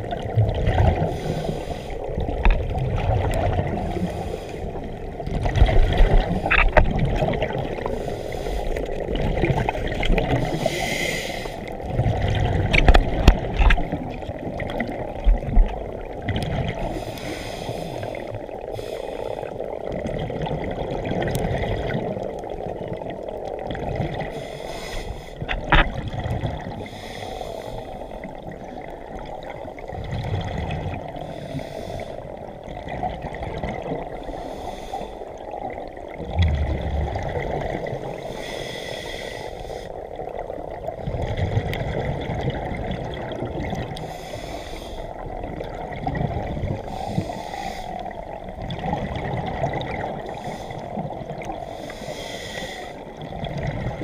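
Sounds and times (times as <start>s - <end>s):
exhaled bubbles gurgling: 0.0s - 54.0s
water hiss: 10.3s - 11.7s, 16.8s - 19.6s, 24.2s - 25.5s, 38.2s - 40.0s, 44.0s - 45.2s, 46.8s - 48.2s, 50.2s - 53.0s.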